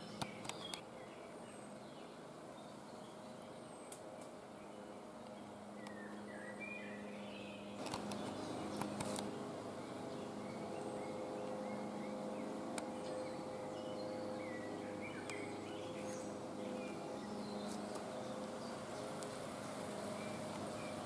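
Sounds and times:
steady low hum: 0:00.0 - 0:21.0
bird chirps: 0:04.7 - 0:21.0.

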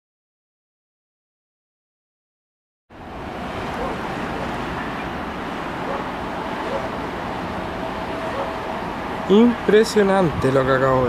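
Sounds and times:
rushing wind: 0:02.9 - 0:11.0
sea noise: 0:02.9 - 0:11.0.

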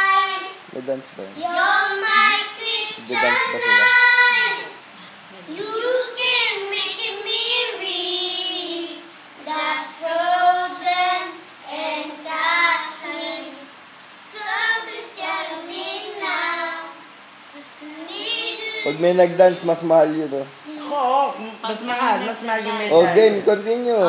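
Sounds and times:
children singing unaccompanied: 0:00.0 - 0:00.7, 0:01.4 - 0:19.2.

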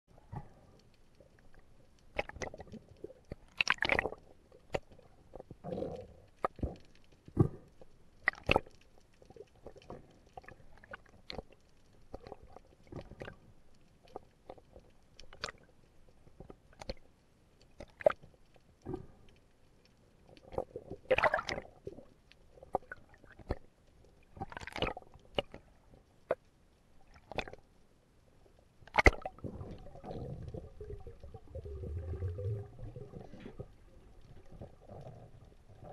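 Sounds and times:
low rumbling of moving water: 0:00.1 - 0:35.9
soft gurgling water: 0:00.1 - 0:35.9
underwater clicks and knocks: 0:28.8 - 0:35.9.

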